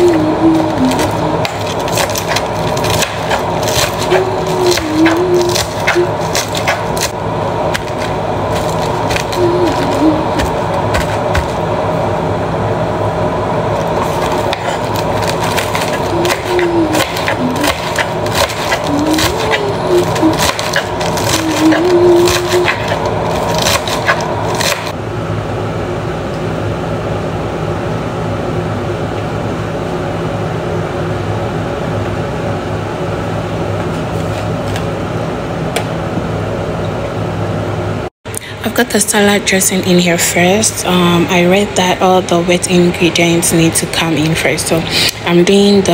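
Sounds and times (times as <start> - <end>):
steady hum: 0.0 - 45.9.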